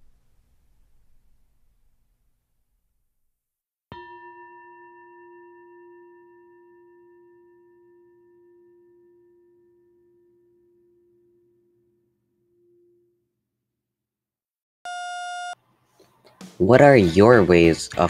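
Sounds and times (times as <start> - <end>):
meditation bell ringing: 3.9 - 13.2.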